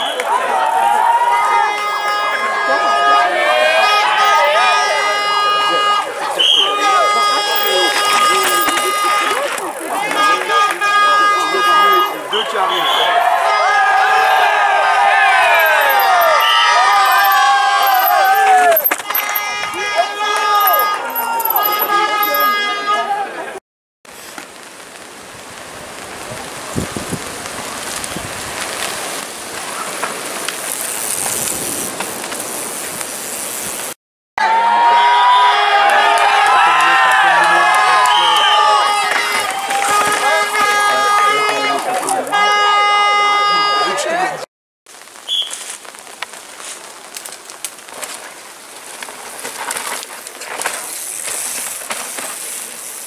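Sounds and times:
bike tyres crunching over dirt: 0.0s - 23.5s, 24.1s - 34.0s, 34.9s - 43.8s, 44.9s - 53.0s
bike chain and frame rattling: 6.2s - 12.4s, 15.0s - 22.7s, 26.2s - 34.0s, 45.6s - 53.0s.

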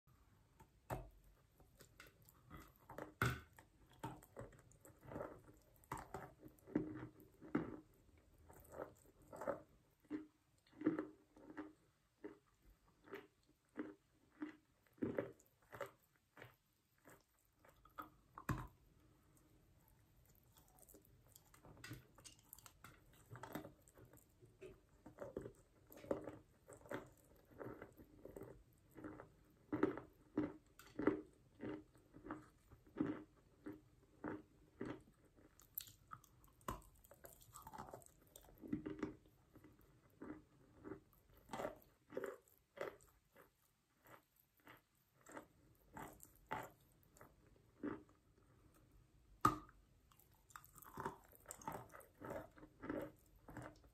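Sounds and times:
person chewing crunchily: 0.4s - 53.9s.

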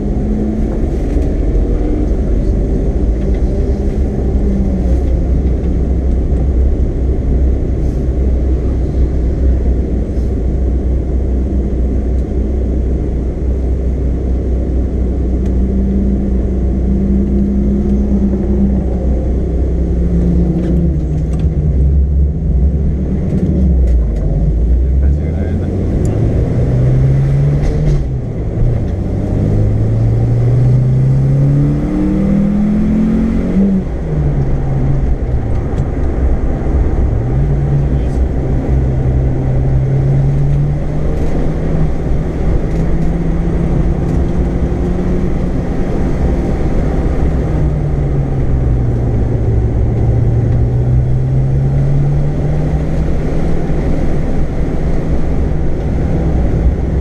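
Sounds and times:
road and tyre noise: 0.0s - 57.0s
race car engine revving: 14.8s - 57.0s.

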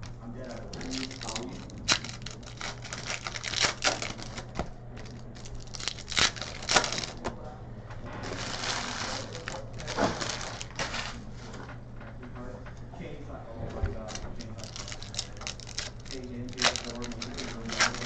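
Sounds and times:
packaging rustling: 0.4s - 7.3s, 8.2s - 11.2s, 13.9s - 18.0s
cards clicking and snapping: 0.5s - 7.3s, 14.0s - 18.0s.

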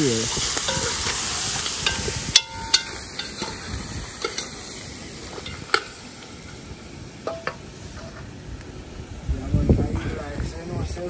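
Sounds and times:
meat sizzling in a pot: 0.0s - 8.4s
spoon clinking against pot: 1.8s - 3.6s.

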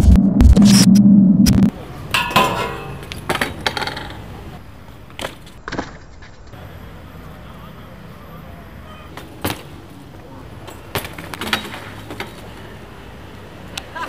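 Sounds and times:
loud humming with clicks: 0.0s - 1.7s
metallic clang: 2.1s - 3.2s
bike crashing onto concrete: 2.2s - 4.2s, 10.7s - 12.5s.

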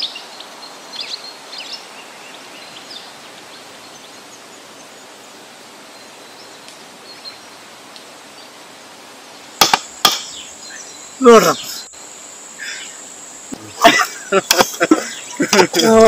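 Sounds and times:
faint bird chirps: 10.2s - 15.4s.

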